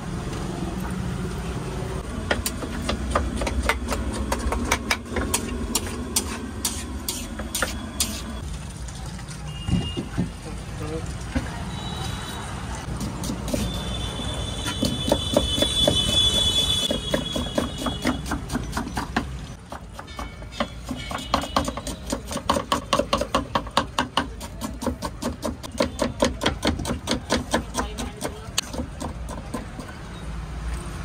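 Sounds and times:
knife chopping on wooden board: 0:02.2 - 0:08.2, 0:14.7 - 0:29.9.

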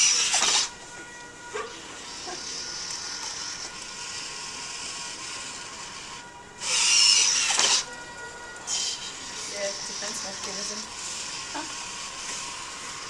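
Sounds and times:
sculpture mechanism hissing: 0:00.0 - 0:00.8, 0:01.6 - 0:07.9, 0:08.7 - 0:13.0.

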